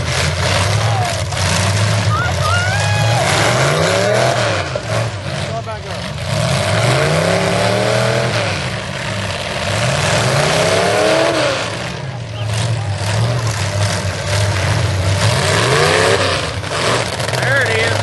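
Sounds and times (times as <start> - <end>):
car engine revving: 0.0 - 18.0
many engines running: 0.0 - 18.0.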